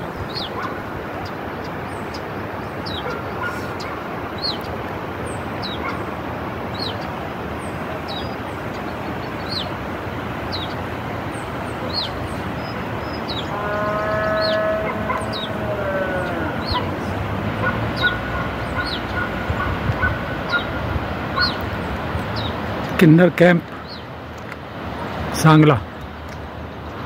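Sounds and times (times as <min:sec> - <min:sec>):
car road noise: 0:00.0 - 0:25.4
drawn-out tone: 0:13.2 - 0:19.4.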